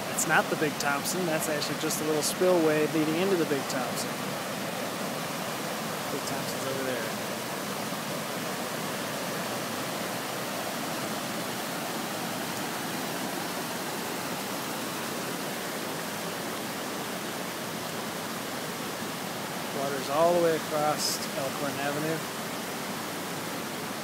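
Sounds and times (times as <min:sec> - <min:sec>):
floodwater rushing over a ledge: 0:00.0 - 0:24.0.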